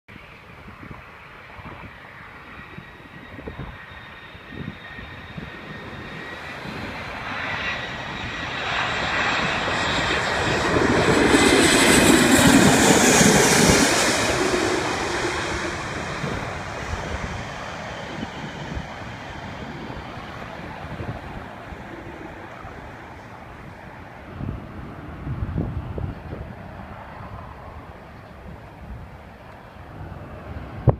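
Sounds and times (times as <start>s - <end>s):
airliner engines passing overhead: 0.1s - 30.9s
high engine whine: 0.2s - 30.9s.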